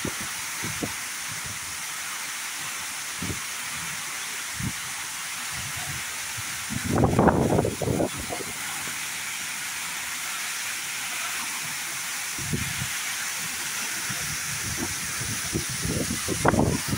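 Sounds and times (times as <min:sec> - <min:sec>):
waterfall rushing: 0:00.0 - 0:16.9
wind buffeting microphone: 0:05.6 - 0:08.5, 0:14.1 - 0:16.9.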